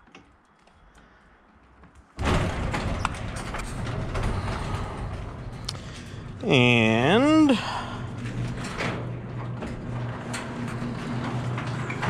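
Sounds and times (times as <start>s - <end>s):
garage door clicks: 2.2s - 6.4s, 7.5s - 12.0s
garage door opener humming: 2.3s - 12.0s.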